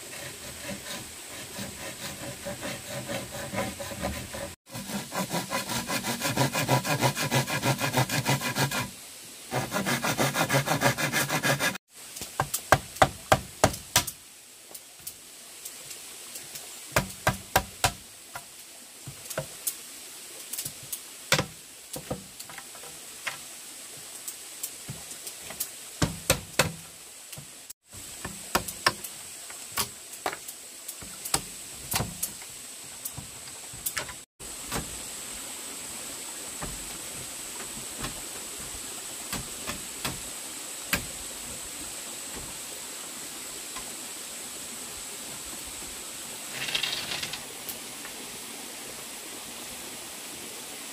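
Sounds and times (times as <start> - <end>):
steady hiss: 0.0 - 50.9
bamboo knocks and taps: 12.2 - 14.2, 16.9 - 18.5, 21.3 - 23.4, 24.9 - 26.8, 28.2 - 34.9.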